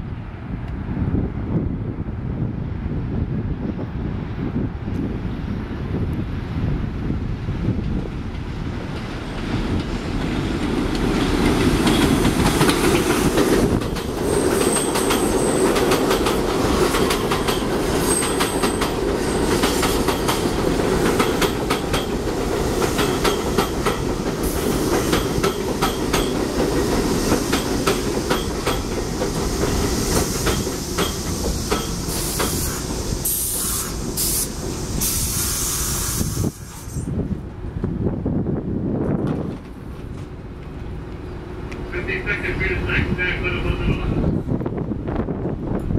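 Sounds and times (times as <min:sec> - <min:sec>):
train wheels rumbling on rail: 0:00.0 - 0:45.9.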